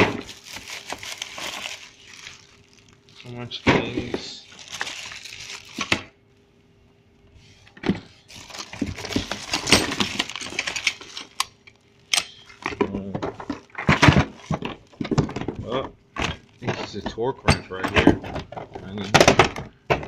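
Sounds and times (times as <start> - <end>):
plastic bags crinkling: 0.0 - 6.5, 8.2 - 17.2.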